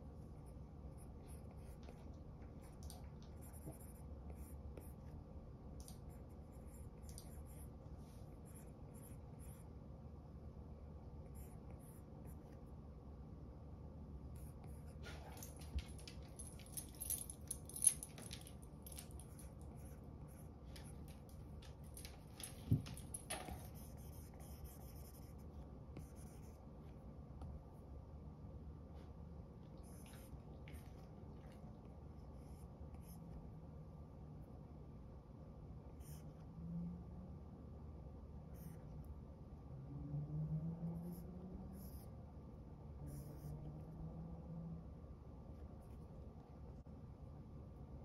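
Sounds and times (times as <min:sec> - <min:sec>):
low steady hum: 0:00.0 - 0:48.0.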